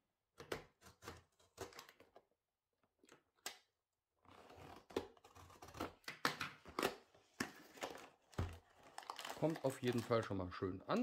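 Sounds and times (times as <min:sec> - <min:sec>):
knife cutting cardboard: 0:04.2 - 0:06.1.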